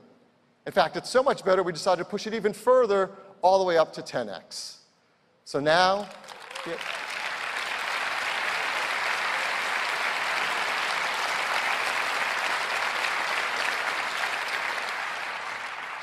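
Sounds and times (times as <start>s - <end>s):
audience applauding: 6.0s - 16.0s.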